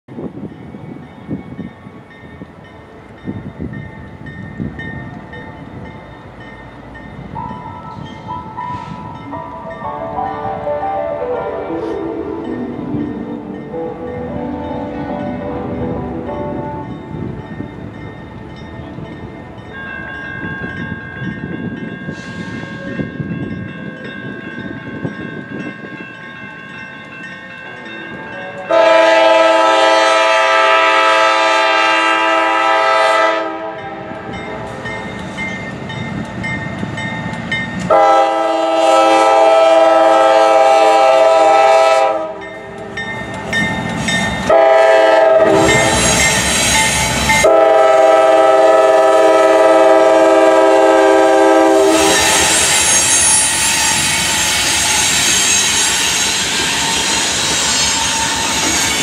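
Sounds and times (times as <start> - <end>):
diesel locomotive engines rumbling: 0.1 - 59.0
train air horn blasts: 28.5 - 34.7, 37.9 - 42.4, 44.5 - 58.6.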